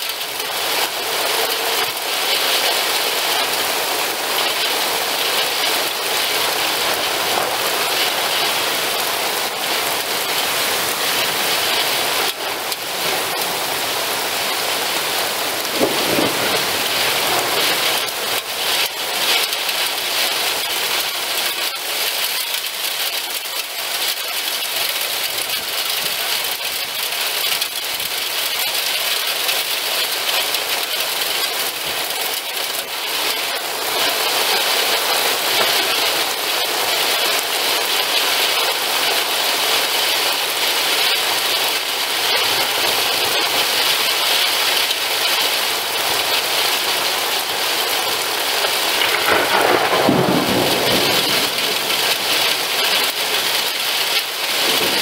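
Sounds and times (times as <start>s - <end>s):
heavy rain and hail: 0.0s - 55.0s
thunder rumbling: 15.3s - 19.9s, 48.4s - 55.0s.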